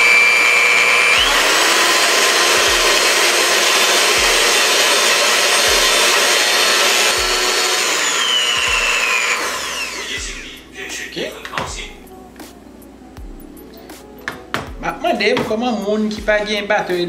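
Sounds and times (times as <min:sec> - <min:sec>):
electric hand mixer whining: 0:00.0 - 0:10.6.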